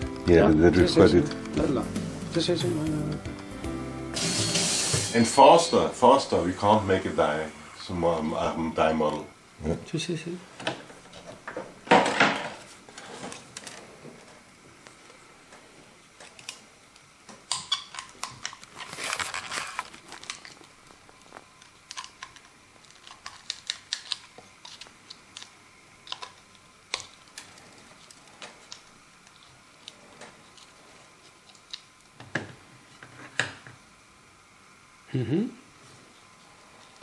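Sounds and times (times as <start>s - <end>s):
rustling and scraping: 10.6s - 16.5s, 18.4s - 25.4s.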